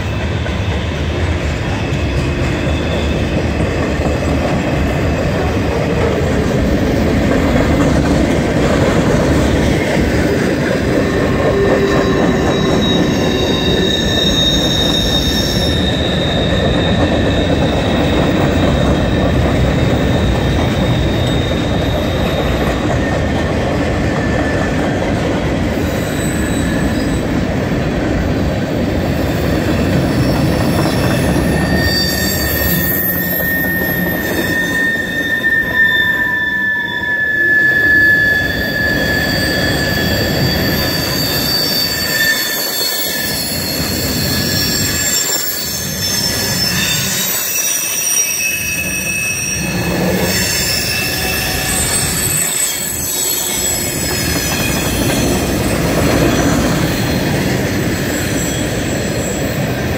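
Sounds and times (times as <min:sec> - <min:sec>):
steel wheels rumbling on rails: 0:00.0 - 0:59.9
high-pitched wheel squeal: 0:09.4 - 0:23.3, 0:25.8 - 0:27.4, 0:29.0 - 0:59.9.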